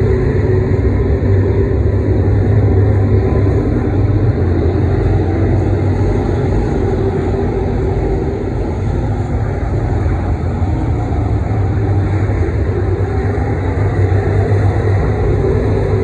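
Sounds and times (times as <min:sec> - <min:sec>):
race car engines droning: 0:00.0 - 0:16.0.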